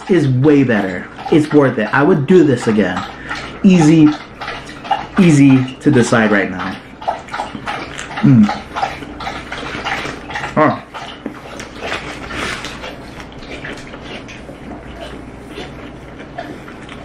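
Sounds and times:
crunchy chewing: 6.9s - 17.0s.

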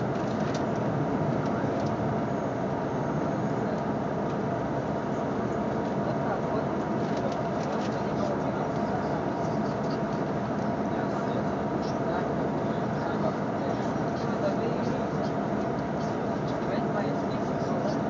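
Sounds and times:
traffic passing: 0.0s - 18.0s
people's voices: 5.2s - 18.0s.

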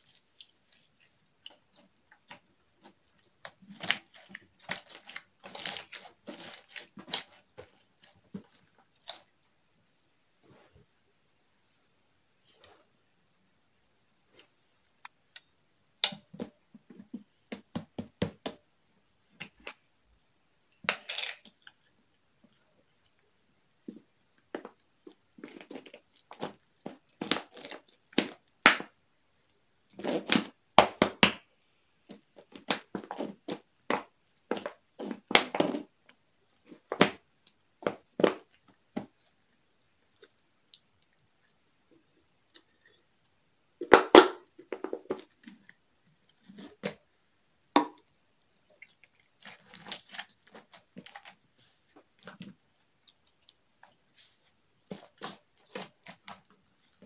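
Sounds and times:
slime squelching and crackling: 0.0s - 9.5s, 23.8s - 28.9s, 45.0s - 47.0s, 48.6s - 57.0s.

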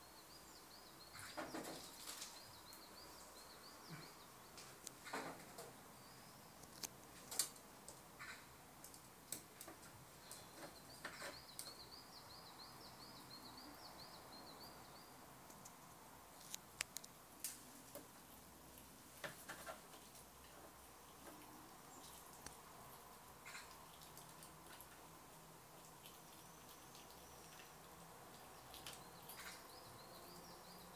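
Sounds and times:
faint sharp clicks and taps: 8.8s - 11.8s, 15.5s - 22.6s
small bird chirping trill: 10.2s - 15.3s, 26.0s - 30.9s.

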